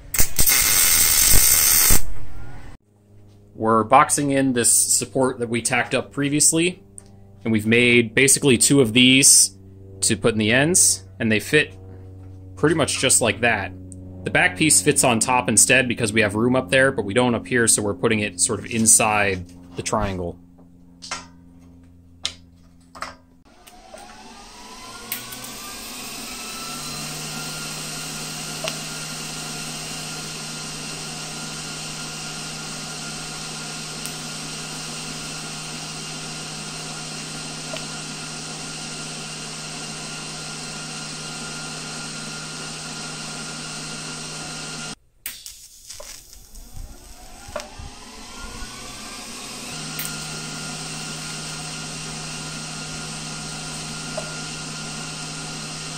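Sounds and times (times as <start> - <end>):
electric motor whining: 0.0 - 2.8, 23.5 - 45.0, 46.0 - 55.9.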